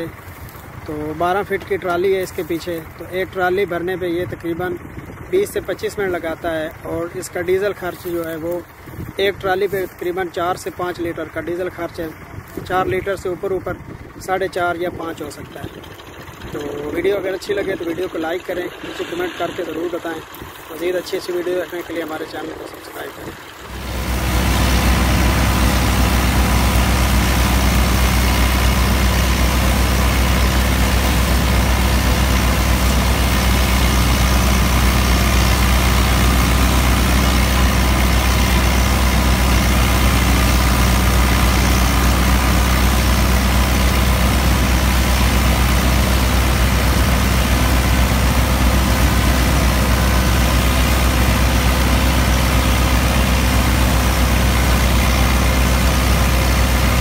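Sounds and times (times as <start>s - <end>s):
tractor diesel engine running: 0.0s - 57.0s
straw chopper cutting straw: 15.2s - 57.0s.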